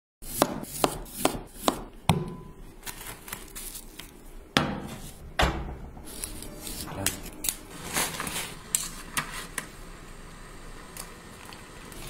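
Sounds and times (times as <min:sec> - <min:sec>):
knife chopping on cutting board: 0:00.3 - 0:02.4.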